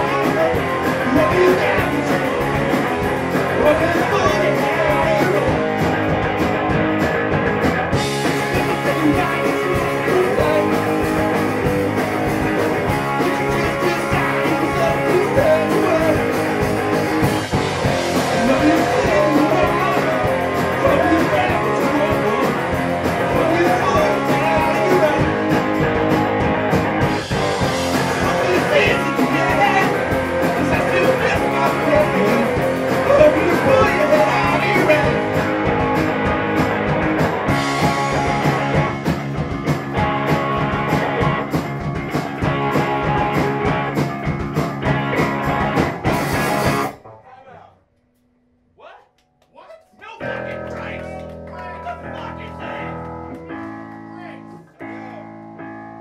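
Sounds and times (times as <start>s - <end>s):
drum kit and cymbals: 0.0s - 47.0s
rock band playing live: 0.0s - 47.2s, 50.0s - 56.0s.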